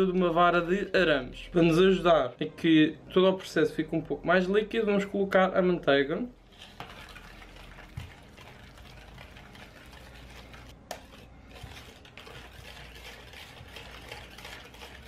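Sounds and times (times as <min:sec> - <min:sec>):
whisk beating batter in bowl: 0:06.4 - 0:15.0
whisk clicking against bowl: 0:06.7 - 0:15.0.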